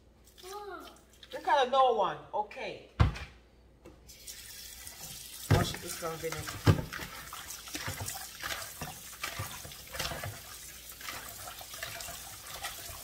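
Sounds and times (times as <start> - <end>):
water splashes: 4.2 - 13.0
tap running into a bowl: 4.3 - 12.9.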